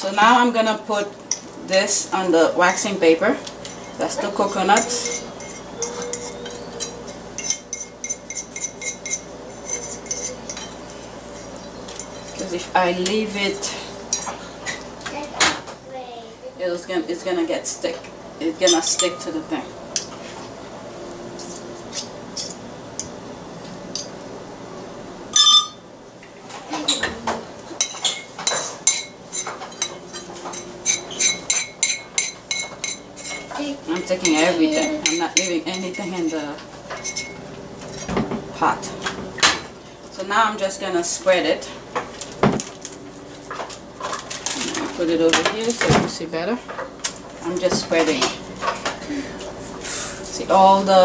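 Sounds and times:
utensil scraping a pot: 3.6 - 12.5, 27.8 - 38.1.

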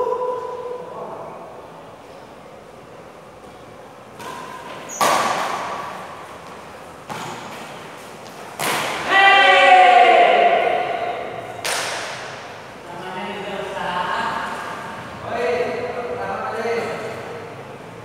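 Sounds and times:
rackets hitting shuttlecock: 3.5 - 9.2, 10.6 - 12.6
loud drawn-out shout: 9.0 - 11.5.

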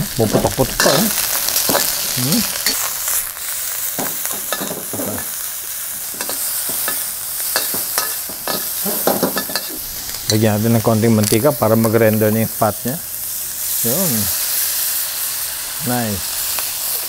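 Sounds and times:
pork sizzling and popping: 0.0 - 17.0
metal spatula scraping wok: 0.4 - 10.5.

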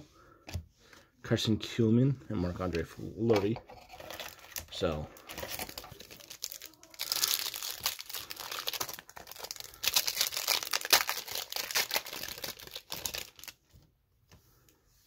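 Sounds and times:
foil wrapper crinkling and tearing: 4.0 - 13.6.

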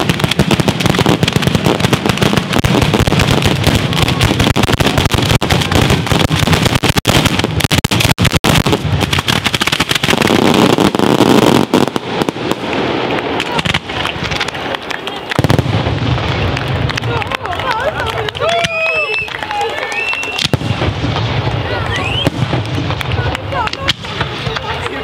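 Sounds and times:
firecracker bangs and crackles: 0.0 - 25.0.

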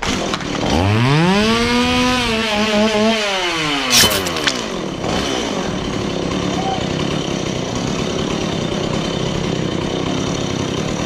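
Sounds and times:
chainsaw engine revving: 0.0 - 11.0
sharp snap: 3.9 - 4.6.

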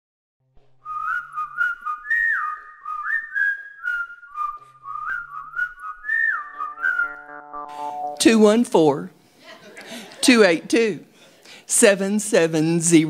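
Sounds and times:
whistled tune: 0.8 - 8.2.

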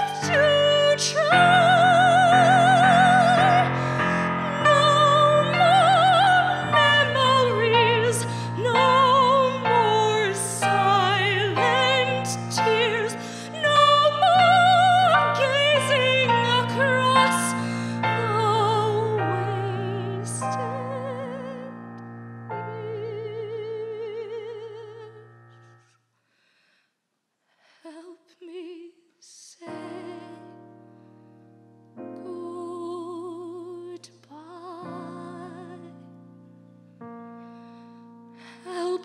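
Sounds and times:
girl singing with vibrato: 0.0 - 21.7, 27.9 - 30.5, 32.2 - 36.0
piano accompaniment: 0.0 - 25.8, 34.6 - 39.0.

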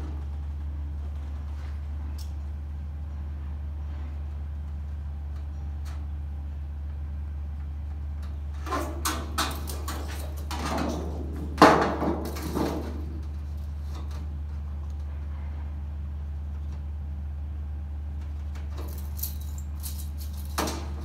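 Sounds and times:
sheet metal rattling and scraping: 8.6 - 14.3.

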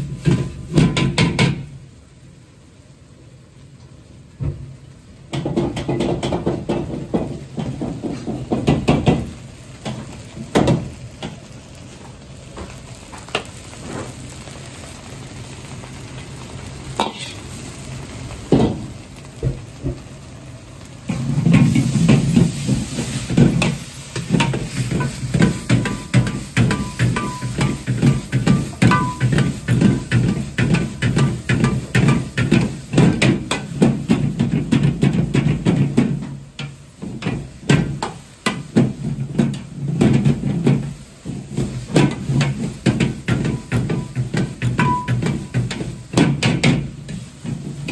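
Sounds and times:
rice sizzling in a wok: 0.0 - 47.9
metal ladle scraping a wok: 17.0 - 17.4, 21.1 - 33.7.

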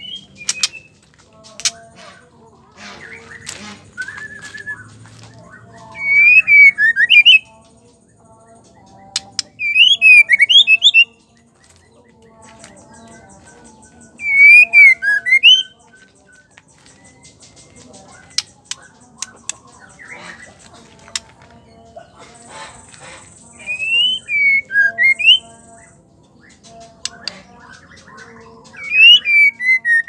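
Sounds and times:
bird whistling rapid notes: 3.0 - 4.9, 23.6 - 25.4.

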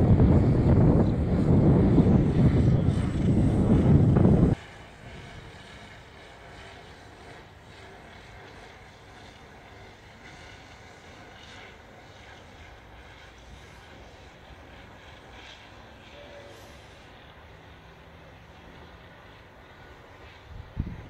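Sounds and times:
wind buffeting microphone: 0.0 - 6.0, 20.2 - 21.0.

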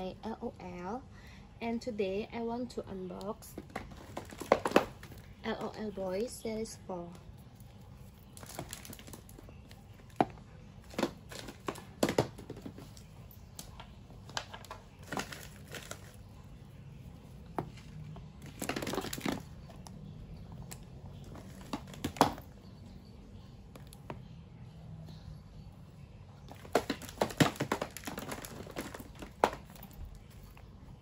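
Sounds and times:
packaging crinkling and rustling: 3.6 - 5.4, 8.2 - 10.2, 10.8 - 16.2, 17.6 - 19.8, 26.5 - 30.0.

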